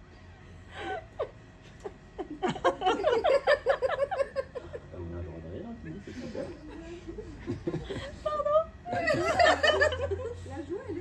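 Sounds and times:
woman laughing: 0.7 - 4.8, 6.3 - 10.9.

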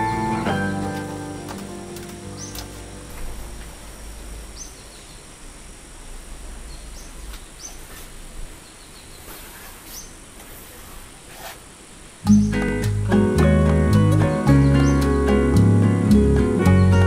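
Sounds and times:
city background hum: 0.0 - 17.0
small bird chirping: 2.3 - 2.8, 4.4 - 5.4, 6.6 - 10.2, 14.1 - 15.4
cloth rustle: 7.7 - 8.4, 9.2 - 11.8.

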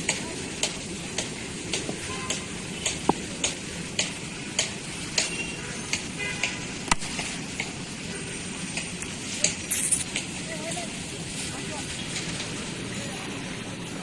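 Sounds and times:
light ticking beat: 0.0 - 7.9
outdoor background noise: 0.0 - 14.0.

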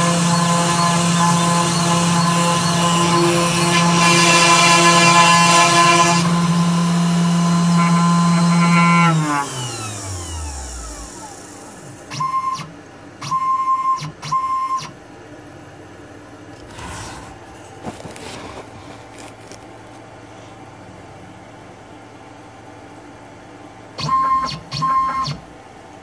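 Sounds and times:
router spindle winding down: 0.0 - 12.1.

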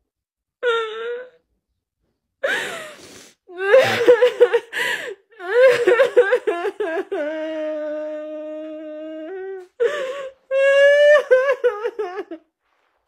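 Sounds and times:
sharp gasping breath: 2.4 - 3.5
woman sobbing and wailing: 2.4 - 12.5.

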